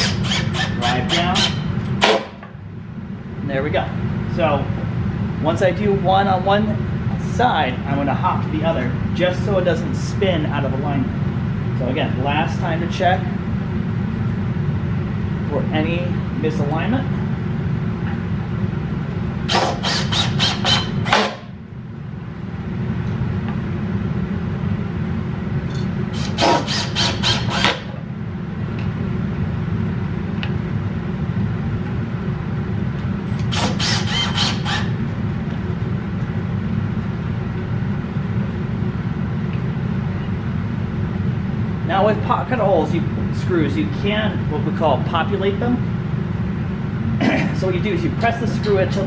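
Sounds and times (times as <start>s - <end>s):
drill driving screws into wood: 0.0s - 0.8s, 19.5s - 21.4s, 26.2s - 27.8s, 33.4s - 34.9s
low steady hum: 0.0s - 49.0s.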